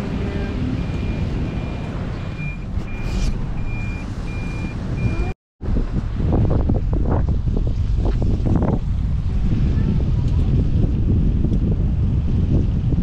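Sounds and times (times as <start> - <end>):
low windy rumble: 0.0 - 13.0
wind buffeting microphone: 0.0 - 13.0
high electronic beeps: 0.8 - 5.3.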